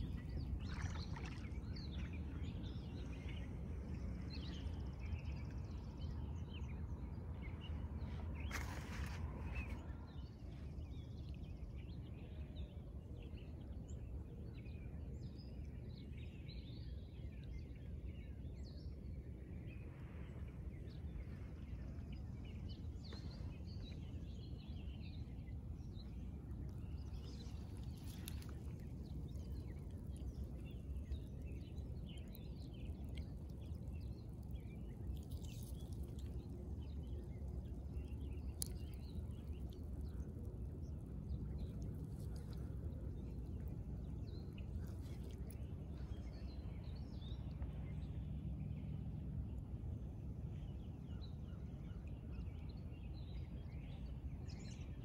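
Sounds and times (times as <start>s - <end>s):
steady low rumble: 0.0s - 55.0s
small birds chirping: 20.8s - 48.2s.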